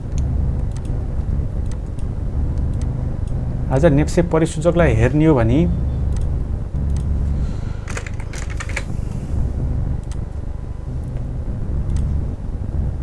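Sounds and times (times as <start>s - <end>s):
keyboard keys clicking: 0.0s - 1.0s, 7.8s - 9.0s
low rumble: 0.0s - 13.0s.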